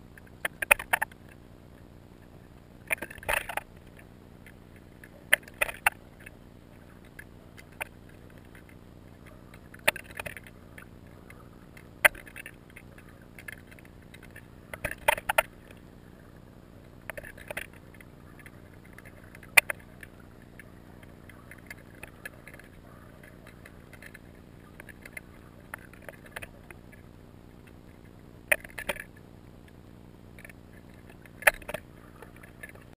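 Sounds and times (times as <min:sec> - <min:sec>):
low underwater hum: 0:00.0 - 0:32.9
sharp clicks and knocks: 0:00.2 - 0:01.4, 0:02.9 - 0:06.4, 0:09.5 - 0:10.9, 0:11.8 - 0:15.8, 0:17.0 - 0:26.8, 0:27.6 - 0:32.9.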